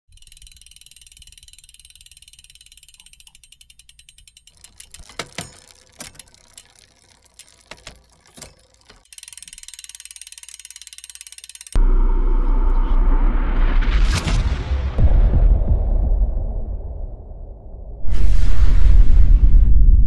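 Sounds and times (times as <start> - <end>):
rapid ratchet-like ticking: 0.1 - 11.8.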